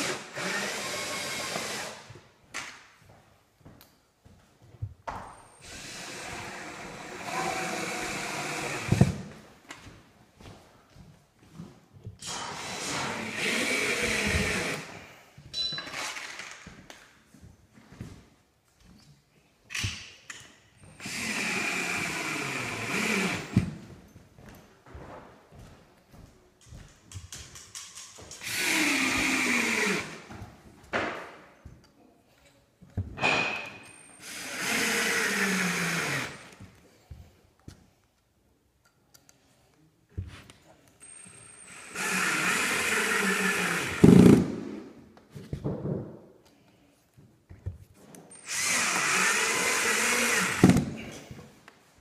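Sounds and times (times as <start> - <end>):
cordless drill drilling into wood: 0.0 - 2.1, 5.6 - 9.2, 12.2 - 15.0, 21.0 - 23.6, 28.4 - 30.2, 34.2 - 36.6, 41.7 - 44.5, 48.4 - 50.8.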